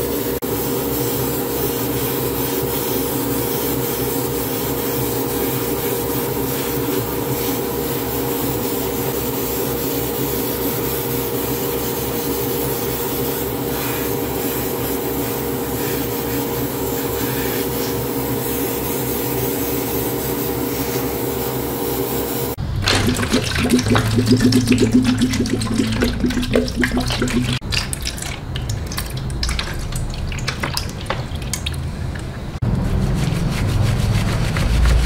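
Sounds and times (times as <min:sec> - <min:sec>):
airbrush air hiss: 0:00.0 - 0:22.6
fan and compressor motor hum: 0:00.0 - 0:35.0
fast low pulsing: 0:22.6 - 0:27.7.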